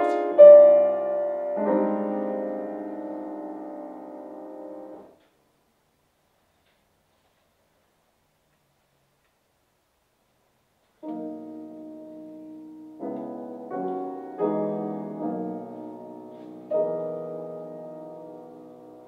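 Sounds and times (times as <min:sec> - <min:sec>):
grand piano chords: 0:00.0 - 0:05.2, 0:11.0 - 0:19.0.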